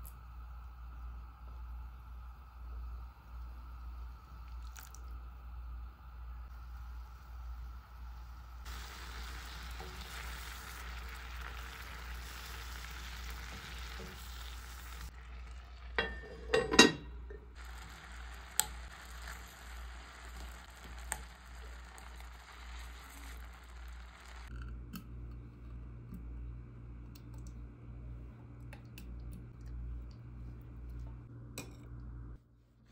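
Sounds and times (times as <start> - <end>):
low steady hum: 0.0 - 32.9
fruit sizzling in a frying pan: 6.5 - 16.4, 17.5 - 24.5.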